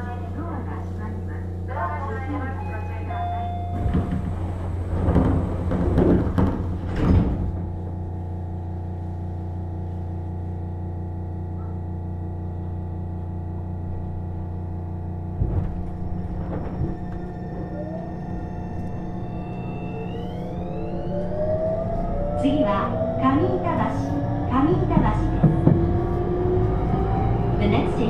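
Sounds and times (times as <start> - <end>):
train doors sliding shut: 3.3 - 7.9, 15.4 - 21.3
knocks: 3.8 - 7.6, 24.9 - 26.0
traction motor whine: 12.0 - 28.0.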